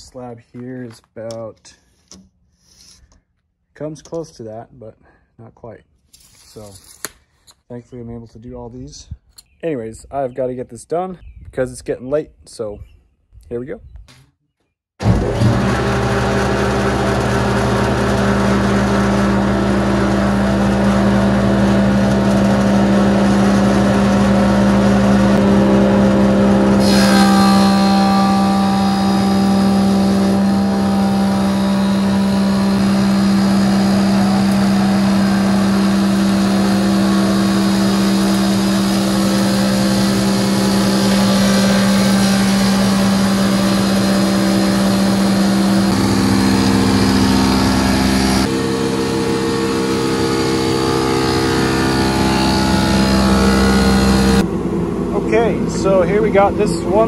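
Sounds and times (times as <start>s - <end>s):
planer machine hum: 15.0s - 57.0s
wood cutting noise: 15.0s - 57.0s.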